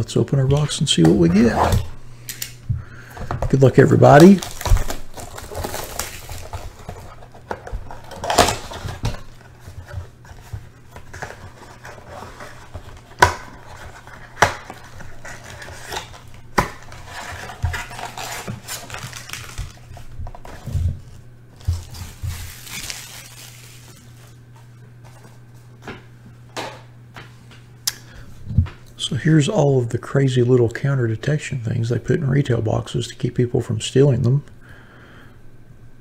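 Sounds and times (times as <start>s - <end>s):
cardboard rustling and scraping: 3.5s - 25.7s.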